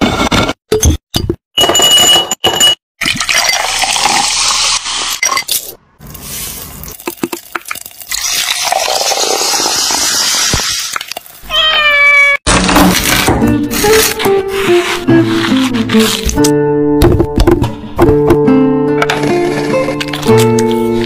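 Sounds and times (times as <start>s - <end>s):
liquid pouring over ice: 3.0s - 4.7s, 6.8s - 11.4s
fizzy soda hissing: 6.2s - 11.4s.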